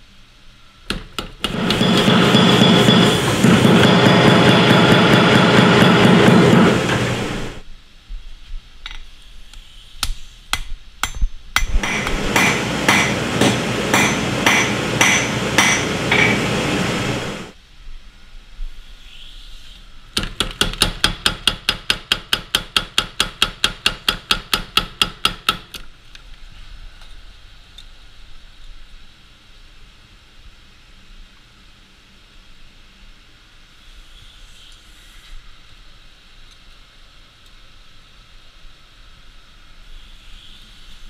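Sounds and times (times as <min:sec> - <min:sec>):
hammer striking hot steel: 0:00.9 - 0:07.6, 0:10.0 - 0:17.5
power hammer striking: 0:00.9 - 0:07.6, 0:11.0 - 0:17.5
steady noise: 0:00.9 - 0:08.1, 0:11.0 - 0:18.5.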